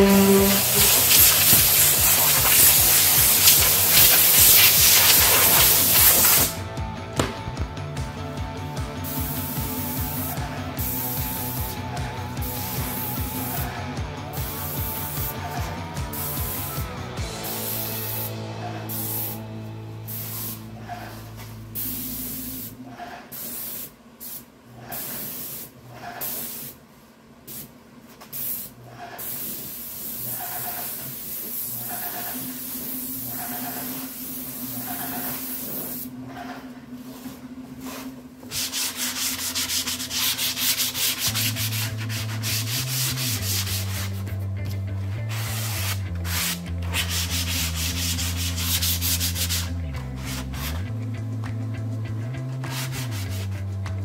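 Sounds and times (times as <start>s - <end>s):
sanding block rasping on wood: 0.0s - 6.5s, 38.5s - 44.2s, 45.3s - 50.8s, 52.6s - 53.5s
spray gun hissing: 0.0s - 6.6s, 9.0s - 13.7s, 14.4s - 16.8s, 17.4s - 20.7s, 21.8s - 26.8s, 28.3s - 36.1s.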